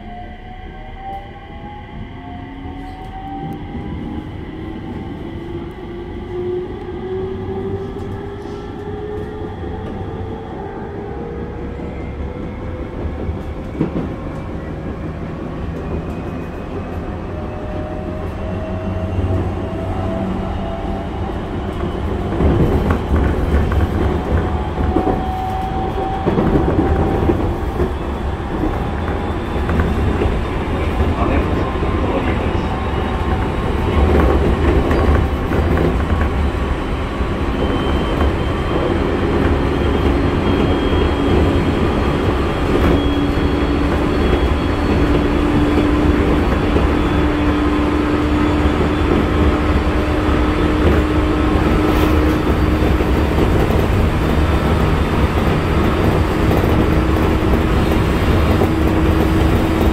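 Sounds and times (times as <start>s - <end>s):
wheels rumbling on rails: 0.0s - 59.9s.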